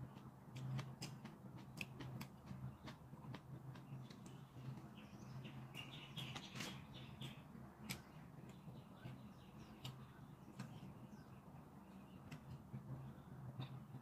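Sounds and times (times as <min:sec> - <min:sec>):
low steady hum: 0:00.0 - 0:14.0
quiet chewing: 0:00.1 - 0:10.9.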